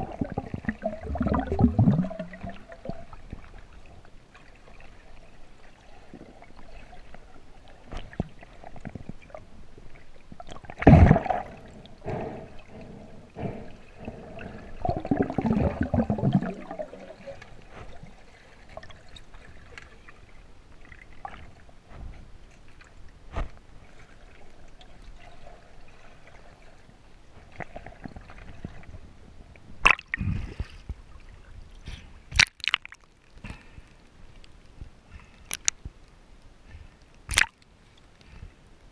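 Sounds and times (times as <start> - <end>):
underwater water swishing: 0.0 - 32.4
water splash: 10.7 - 12.3, 14.1 - 18.0, 37.3 - 37.6
underwater clicks and knocks: 35.5 - 35.8.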